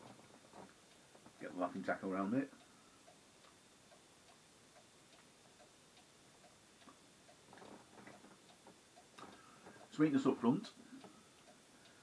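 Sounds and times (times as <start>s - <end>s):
clock ticking faintly: 0.0s - 12.0s
faint rustle: 6.4s - 12.0s.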